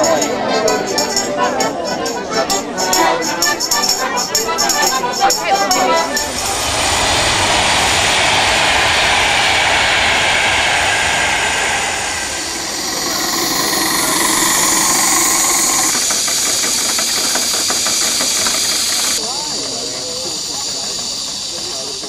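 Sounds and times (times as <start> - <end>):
steam hissing: 5.8 - 22.0
steam engine running gear ticking: 12.2 - 22.0.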